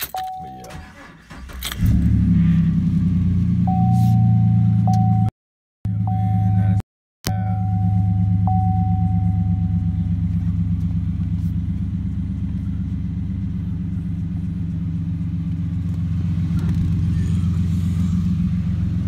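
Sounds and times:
high steady tone: 5.9s - 10.3s
pickup engine idling: 5.9s - 19.0s.

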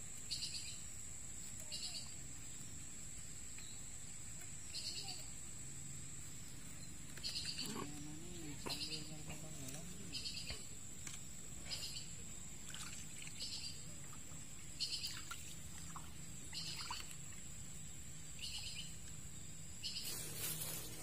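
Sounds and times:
bird calling: 7.1s - 10.7s.

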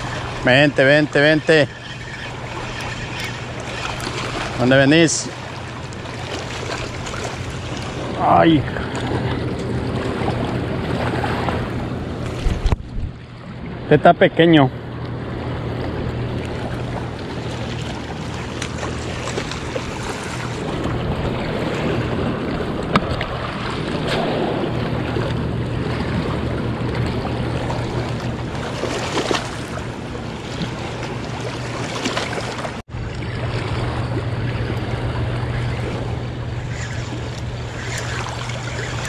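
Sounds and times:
water lapping against rocky bank: 0.0s - 13.9s, 15.4s - 39.0s
low steady hum: 0.0s - 39.0s.

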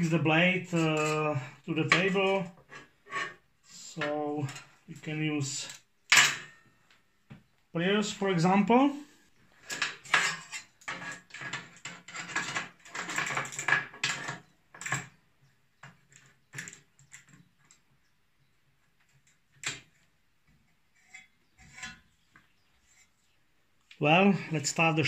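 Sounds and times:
metal blade scraping on workbench: 0.8s - 3.9s, 9.7s - 13.0s, 21.0s - 22.1s.

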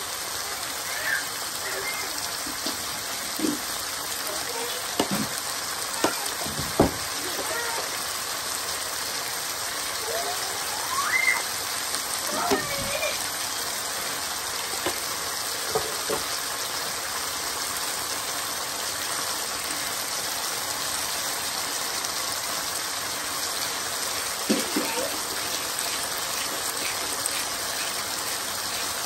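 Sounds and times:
meat sizzling in a frying pan: 0.0s - 29.0s.

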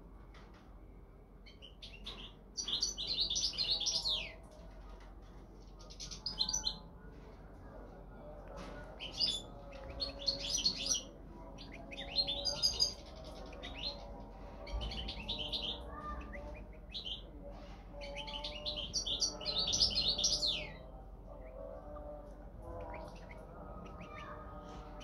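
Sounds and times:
goldfinch twittering song: 1.5s - 4.4s, 18.1s - 20.8s.

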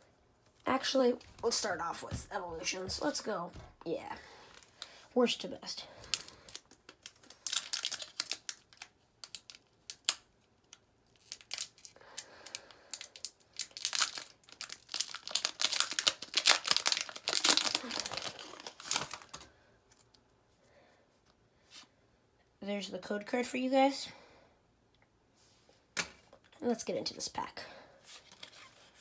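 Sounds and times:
foil wrapper crinkling: 6.0s - 19.5s.

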